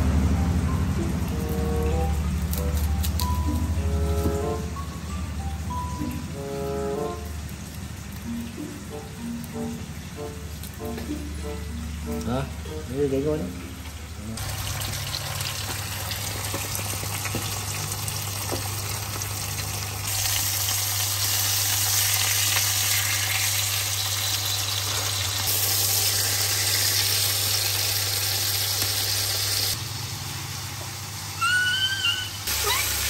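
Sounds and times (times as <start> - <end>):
steaks sizzling in a pan: 14.4 - 29.8.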